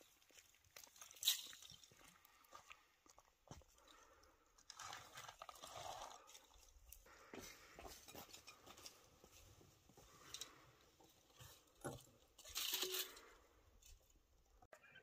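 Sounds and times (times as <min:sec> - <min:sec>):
faint footsteps: 0:00.2 - 0:04.2, 0:06.9 - 0:12.0.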